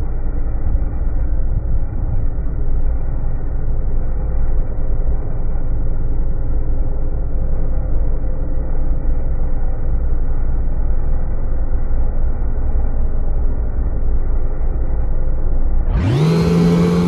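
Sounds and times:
snowmobile engine rumble: 0.0s - 17.0s.

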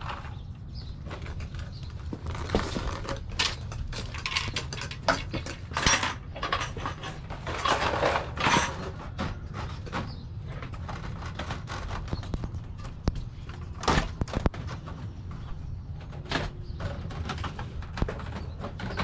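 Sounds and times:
vinyl siding clattering and scraping: 0.0s - 19.0s
footsteps on brick pavers: 0.1s - 4.2s.

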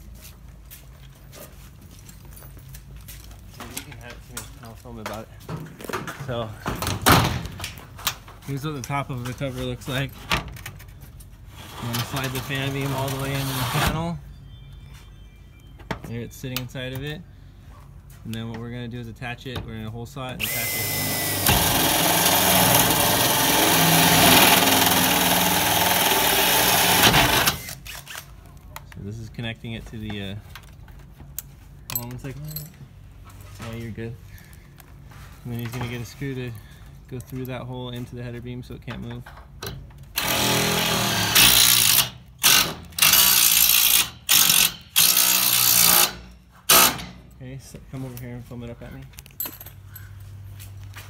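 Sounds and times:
hole saw cutting metal: 20.4s - 27.8s, 40.2s - 47.1s
cordless drill motor hum: 20.4s - 28.0s
power screwdriver driving screw: 20.4s - 28.3s, 40.2s - 47.0s.

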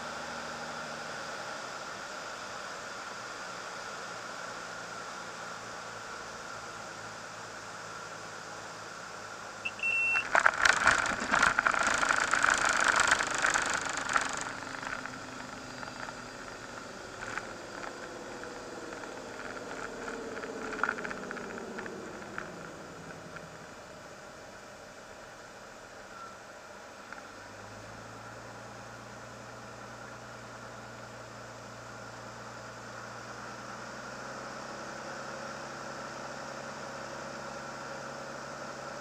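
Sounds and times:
wheels rumbling on runway: 0.0s - 39.0s
short beep: 9.6s - 10.3s
aircraft engine idling: 9.6s - 24.6s
falling whine: 9.6s - 24.7s.

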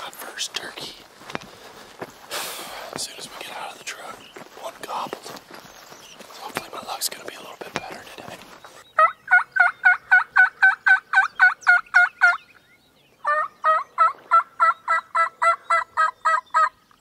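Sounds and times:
turkey yelping: 9.0s - 12.4s, 13.2s - 16.8s.

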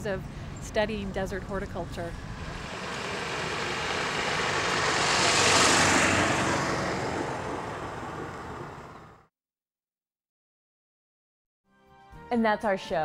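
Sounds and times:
vehicle passing by: 2.1s - 9.3s.

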